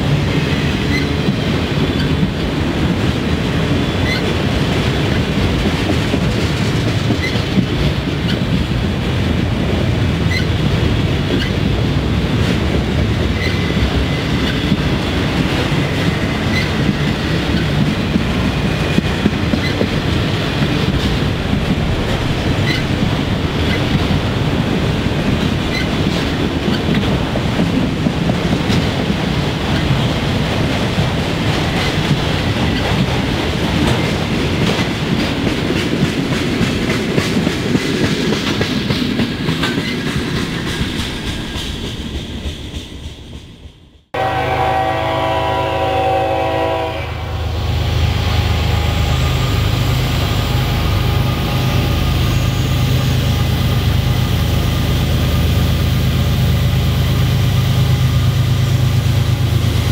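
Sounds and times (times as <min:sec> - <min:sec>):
train wheels clacking over rail joints: 0:00.0 - 0:08.8, 0:12.4 - 0:43.6
diesel locomotive rumble: 0:00.0 - 0:37.7, 0:38.9 - 0:59.9
locomotive horn blast: 0:44.2 - 0:49.0.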